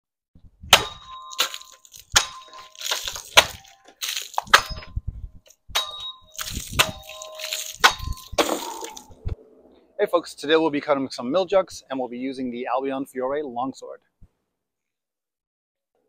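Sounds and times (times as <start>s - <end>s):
sword striking plastic jugs: 0.8s - 4.9s, 5.8s - 9.1s
water splashing: 1.3s - 4.8s, 6.3s - 9.2s.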